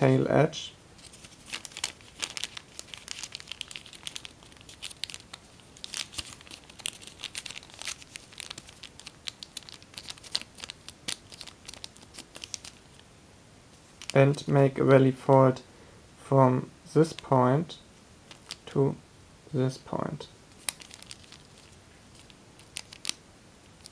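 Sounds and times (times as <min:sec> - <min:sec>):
foil paper crinkling: 0:01.0 - 0:13.0, 0:20.5 - 0:23.2.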